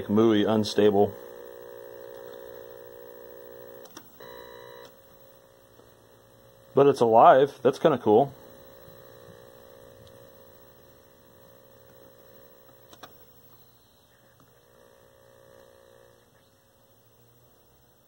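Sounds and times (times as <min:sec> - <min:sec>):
television electrical hum: 0:00.0 - 0:18.0.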